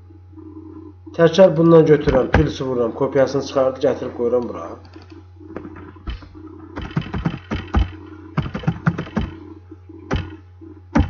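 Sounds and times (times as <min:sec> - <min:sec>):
low electrical hum: 0:00.0 - 0:11.0
keyboard typing: 0:06.8 - 0:09.4.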